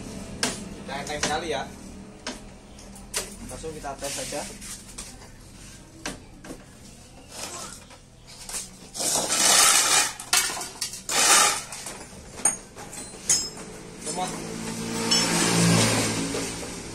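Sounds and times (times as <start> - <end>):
metal clattering and scraping: 7.3 - 16.9
sharp ringing clinks: 12.5 - 13.8, 15.0 - 15.6.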